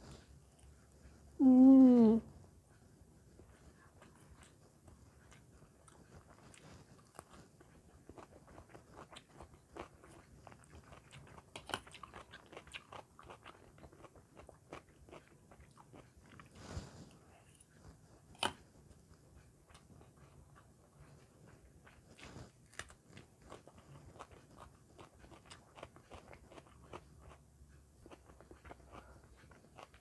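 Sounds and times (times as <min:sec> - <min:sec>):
mouth chewing crunchy food: 0:03.4 - 0:18.7, 0:19.4 - 0:30.0.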